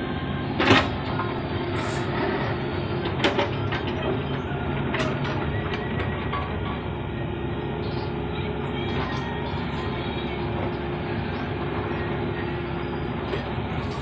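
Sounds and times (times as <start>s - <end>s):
excavator engine running: 0.0s - 14.0s
metallic clanks from excavator: 0.6s - 7.0s, 7.8s - 9.9s, 13.2s - 14.0s.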